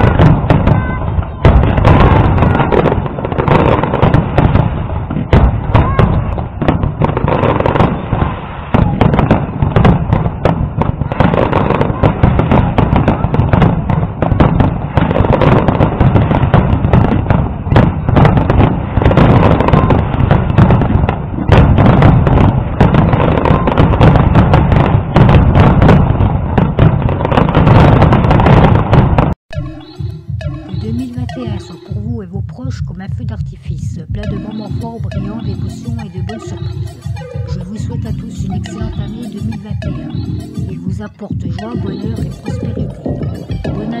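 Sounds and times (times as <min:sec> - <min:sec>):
fireworks booming and cracking: 0:00.0 - 0:44.0.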